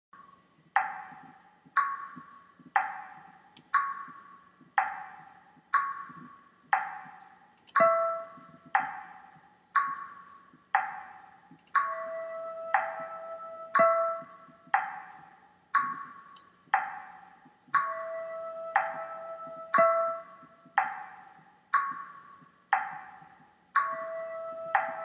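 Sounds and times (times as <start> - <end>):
repeated struck ringing note: 6.8 - 9.9, 10.8 - 22.0, 22.8 - 25.0.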